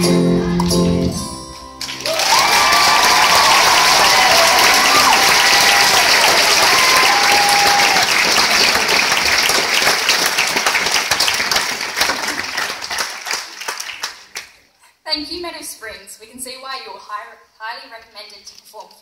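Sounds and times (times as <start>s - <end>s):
audience applauding: 1.7s - 14.6s.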